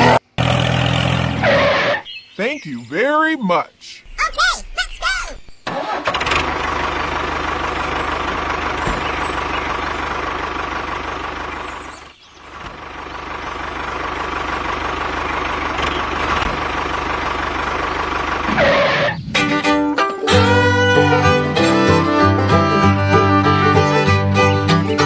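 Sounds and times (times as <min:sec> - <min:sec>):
tractor engine knocking idle: 0:05.7 - 0:19.0.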